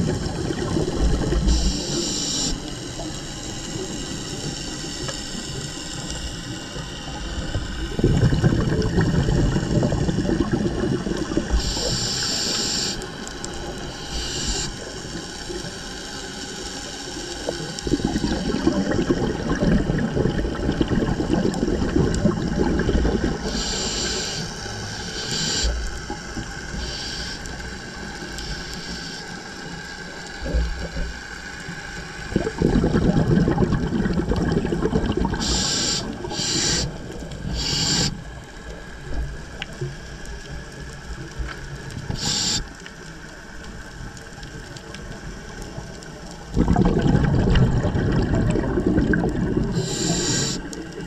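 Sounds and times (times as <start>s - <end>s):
bubbling underwater exhalations: 0.0s - 2.0s, 7.3s - 12.3s, 17.4s - 24.0s, 32.2s - 38.3s, 45.8s - 51.0s
regulator hissing: 0.2s - 10.5s, 11.4s - 19.5s, 22.4s - 30.4s, 35.1s - 38.7s, 42.0s - 42.8s, 49.7s - 51.0s.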